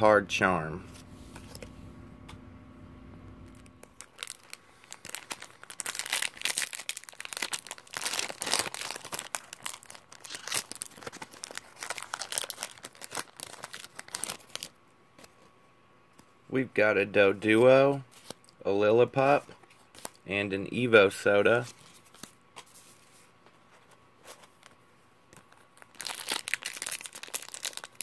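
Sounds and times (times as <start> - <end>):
foil wrapper crinkling and tearing: 3.5 - 14.8, 24.4 - 28.0.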